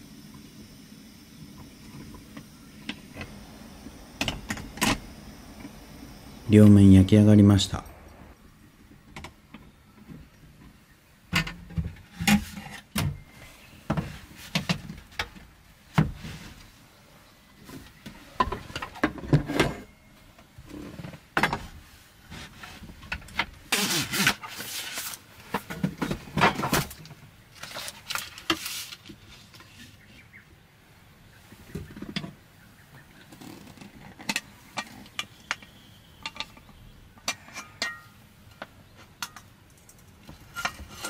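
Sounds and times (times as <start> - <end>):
noisy rushes: 1.6 - 9.1.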